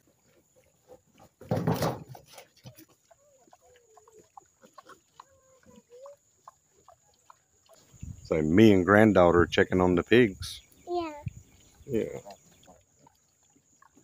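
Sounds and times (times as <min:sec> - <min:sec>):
pigs grunting: 0:02.4 - 0:07.9.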